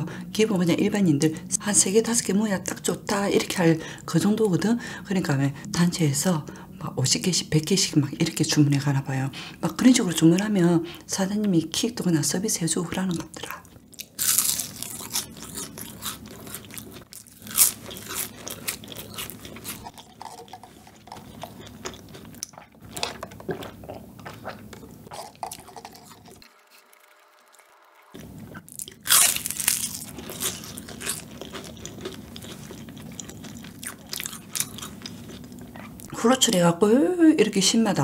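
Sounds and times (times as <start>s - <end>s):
crunching of pastry being chewed: 13.4s - 27.6s, 28.2s - 36.1s.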